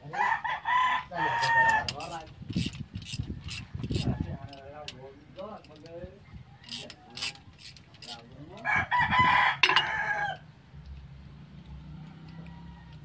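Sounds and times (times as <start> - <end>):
rooster crowing: 0.0 - 1.9, 8.6 - 10.5, 11.9 - 13.0
wrenches clicking: 1.4 - 5.9, 6.6 - 8.7.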